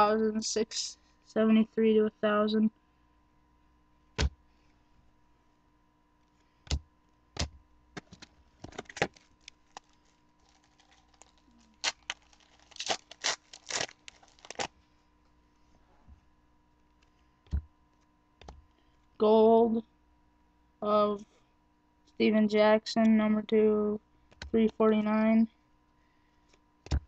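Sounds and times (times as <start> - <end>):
cards snapping and rustling: 7.4 - 14.7.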